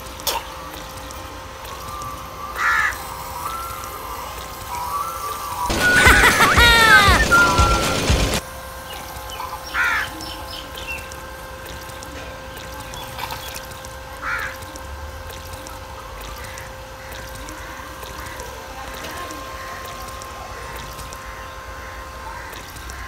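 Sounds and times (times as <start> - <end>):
electric water pump humming: 0.0 - 23.0
water trickling: 11.0 - 21.2.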